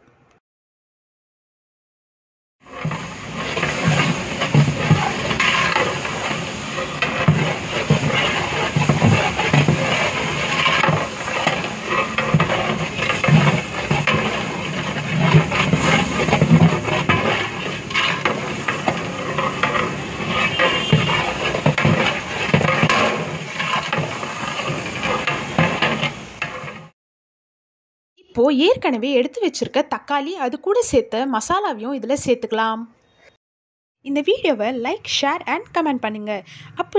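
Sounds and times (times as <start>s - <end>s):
metal ladle scraping pot: 2.6s - 26.9s
onions sizzling in oil: 2.6s - 26.9s.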